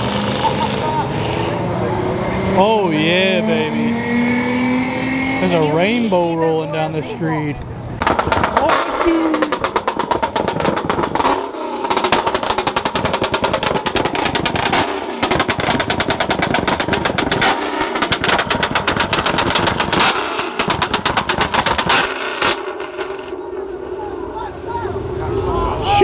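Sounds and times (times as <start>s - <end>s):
car engine revving: 0.0s - 7.0s, 7.8s - 26.0s
exhaust popping rapidly: 7.9s - 23.5s.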